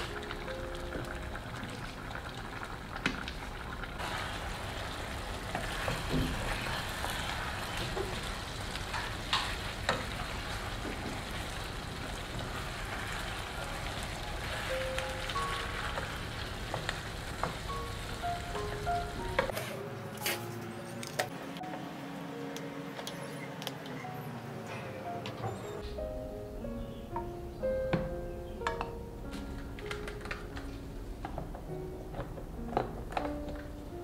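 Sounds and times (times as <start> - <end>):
chicken sizzling in sauce: 1.4 - 19.2.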